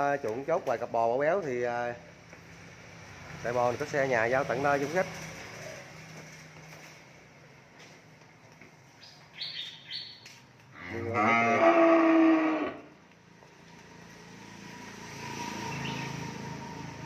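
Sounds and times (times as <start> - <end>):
young cow bawling: 10.8 - 12.9.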